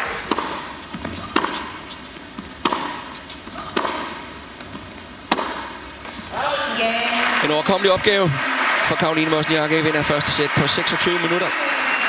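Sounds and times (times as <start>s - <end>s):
racket hitting tennis ball: 0.0s - 6.4s.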